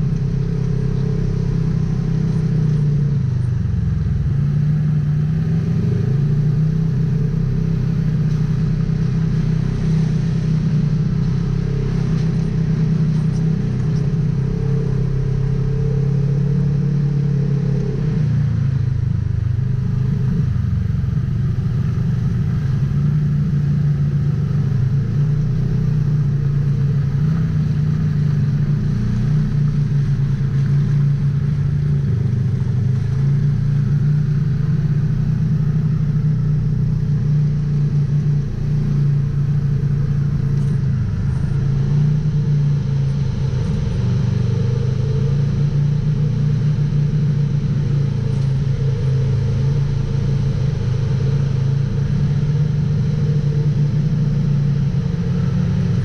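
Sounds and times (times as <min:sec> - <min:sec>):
engine running steadily: 0:00.0 - 0:56.0.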